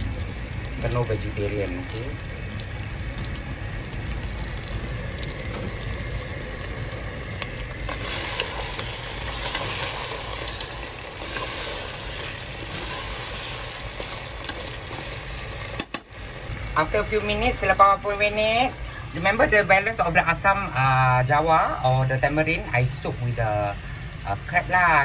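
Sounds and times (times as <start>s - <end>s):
chilli paste sizzling in a pot: 0.0s - 25.0s
spatula stirring crab: 7.9s - 15.9s.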